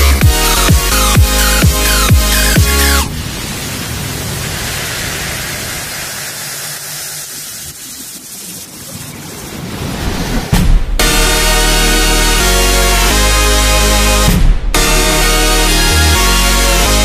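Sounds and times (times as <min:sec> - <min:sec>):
steady rushing hiss: 0:00.6 - 0:10.6.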